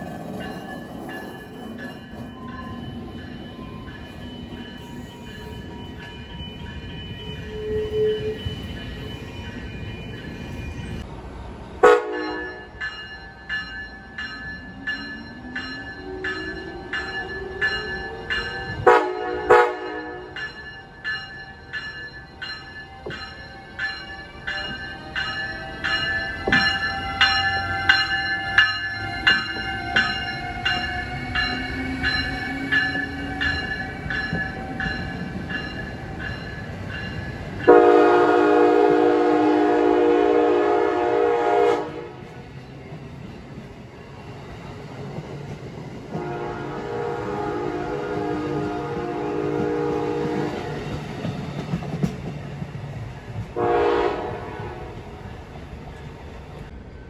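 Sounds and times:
train electric motors whining: 0:00.0 - 0:56.7
railcars rumbling past: 0:00.0 - 0:57.0
train horn blasts: 0:11.8 - 0:12.7, 0:18.7 - 0:20.4, 0:37.7 - 0:42.3, 0:46.1 - 0:50.8, 0:53.6 - 0:55.0
bell ringing: 0:12.2 - 0:37.7.

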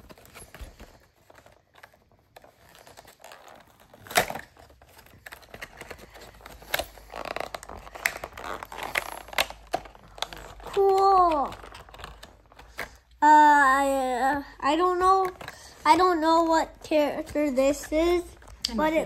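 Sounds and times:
packet tearing: 0:00.0 - 0:13.0
plastic packet crinkling: 0:00.0 - 0:13.1.

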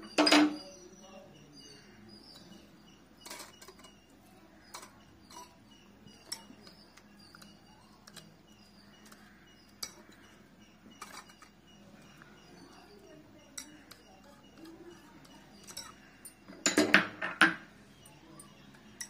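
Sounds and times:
whisk clinking against a bowl: 0:12.9 - 0:16.4.

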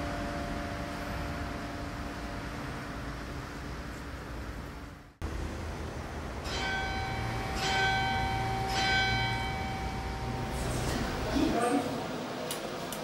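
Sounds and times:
church bell ringing: 0:00.0 - 0:02.4, 0:06.4 - 0:11.2.

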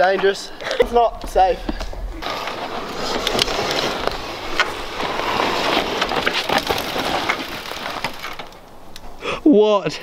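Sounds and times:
twigs crackling and snapping: 0:01.8 - 0:09.1
bike tyres skidding in dirt: 0:02.2 - 0:08.7.

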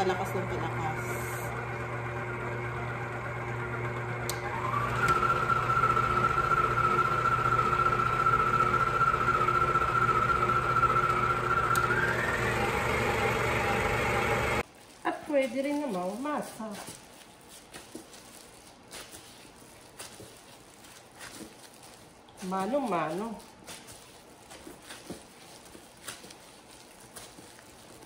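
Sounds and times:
stand mixer motor whine: 0:00.1 - 0:14.6.

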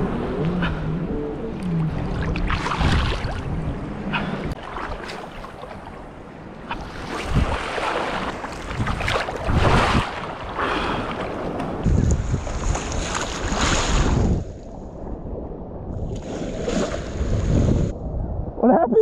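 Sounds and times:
sea waves splashing: 0:00.0 - 0:14.5
wind rumble on microphone: 0:00.0 - 0:19.0.

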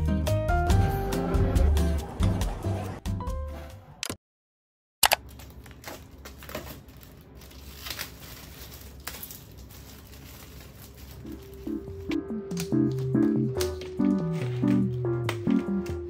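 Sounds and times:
plastic wrapping crinkling: 0:05.2 - 0:16.0.

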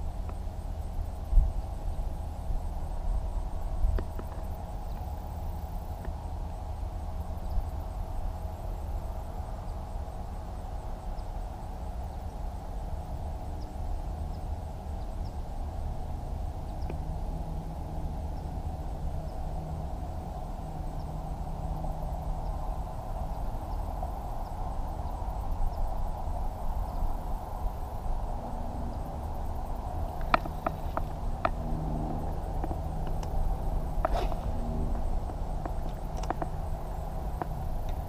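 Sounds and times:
mid-pitched hum: 0:00.0 - 0:38.0
faint ticks: 0:00.2 - 0:00.4, 0:03.8 - 0:06.2, 0:16.7 - 0:17.1, 0:30.0 - 0:38.0
low rumble: 0:14.8 - 0:38.0.

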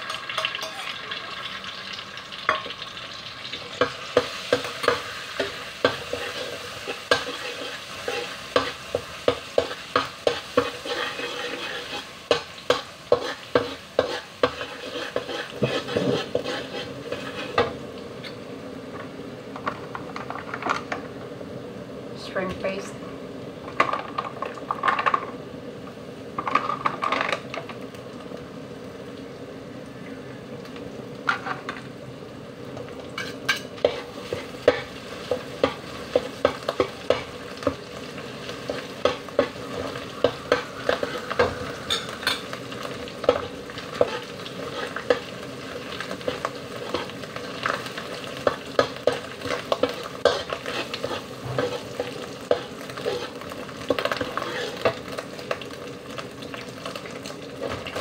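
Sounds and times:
food sizzling in hot oil: 0:00.0 - 0:58.0
metal spoon scraping a wok: 0:03.8 - 0:17.7, 0:33.2 - 0:37.8, 0:38.6 - 0:42.6, 0:43.2 - 0:45.3, 0:46.2 - 0:55.0.

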